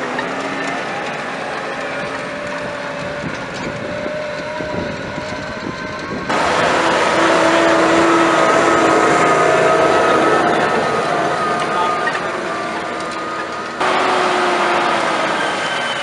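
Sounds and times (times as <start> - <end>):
tractor engine running under load: 0.0 - 16.0
steady whine: 6.2 - 16.0.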